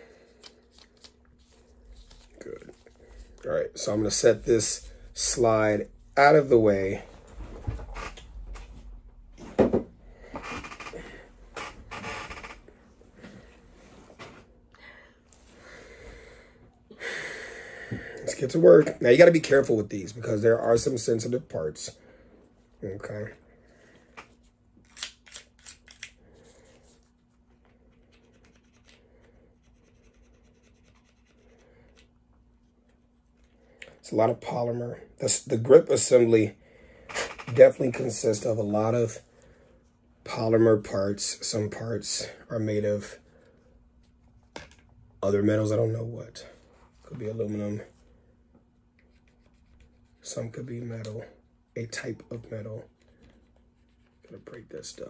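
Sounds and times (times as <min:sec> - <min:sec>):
rustling and scraping: 0:07.0 - 0:09.7
small brush scrubbing plastic: 0:49.0 - 0:50.6, 0:52.5 - 0:55.0.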